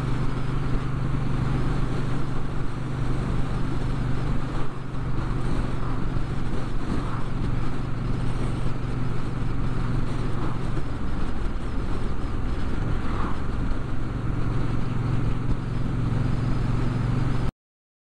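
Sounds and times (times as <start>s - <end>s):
motorcycle engine cruising: 0.0s - 17.5s
wind and road noise: 0.0s - 17.5s
car passing: 4.6s - 17.4s.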